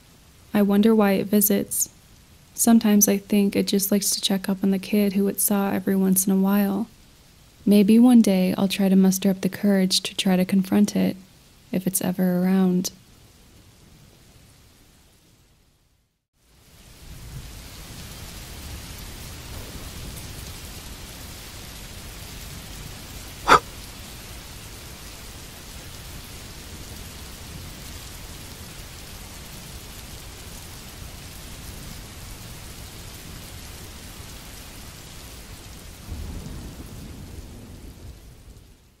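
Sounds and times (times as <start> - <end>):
steady rain: 0.0 - 39.0.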